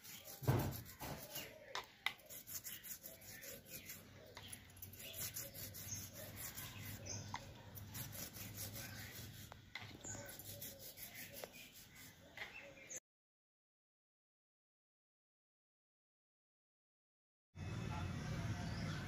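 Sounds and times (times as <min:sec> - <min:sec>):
toothbrush scrubbing carpet: 0:00.0 - 0:01.5, 0:02.2 - 0:04.1, 0:04.8 - 0:12.1.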